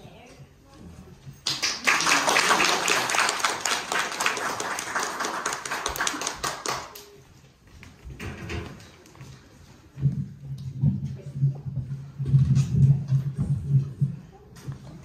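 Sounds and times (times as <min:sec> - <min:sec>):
audience clapping: 0:01.4 - 0:07.3.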